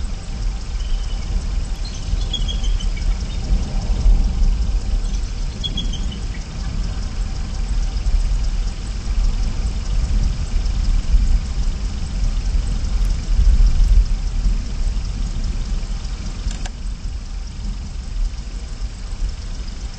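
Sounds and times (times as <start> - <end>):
low rumbling with hiss: 0.0 - 19.9
bird chirping faintly: 0.7 - 4.1, 4.9 - 6.8.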